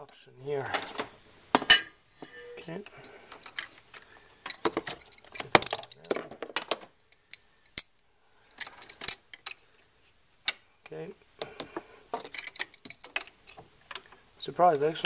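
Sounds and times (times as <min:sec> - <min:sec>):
wrench clinking on metal: 0:04.5 - 0:09.6, 0:12.2 - 0:13.6.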